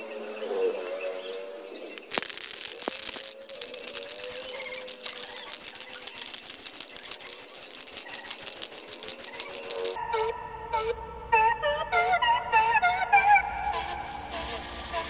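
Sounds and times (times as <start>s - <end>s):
fast even clicks: 2.0s - 10.0s.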